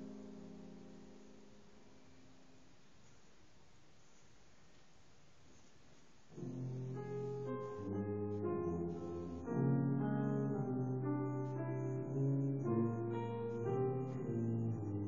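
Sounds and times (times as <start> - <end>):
tuba and piano music: 6.3 - 15.0.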